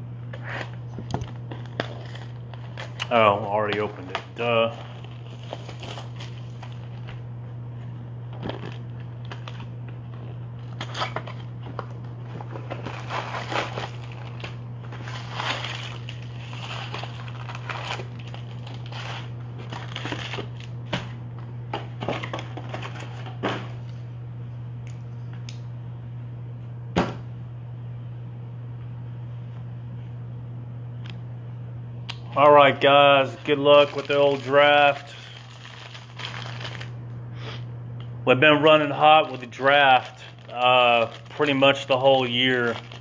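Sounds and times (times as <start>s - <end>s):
steady low hum: 0.0s - 43.0s
cardboard box rustling: 12.3s - 20.4s.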